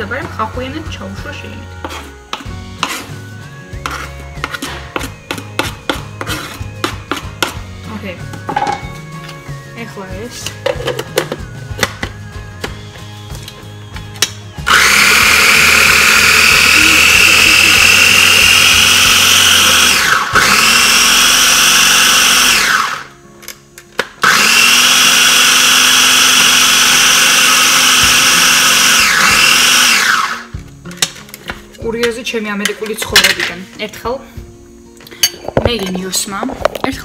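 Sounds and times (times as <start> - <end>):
electric food chopper whining: 14.2 - 23.2, 24.0 - 30.7.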